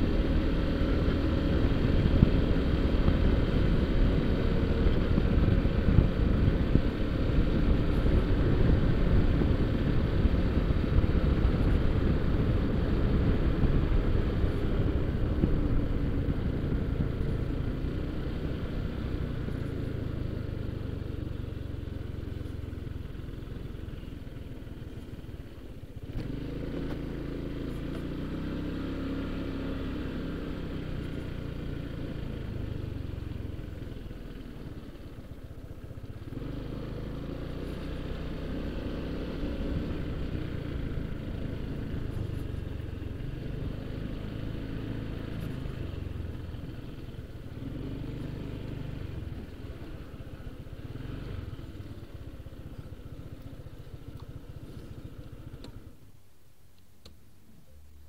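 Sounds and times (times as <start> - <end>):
scooter engine running: 0.0 - 56.0
wind noise on microphone: 1.3 - 17.8.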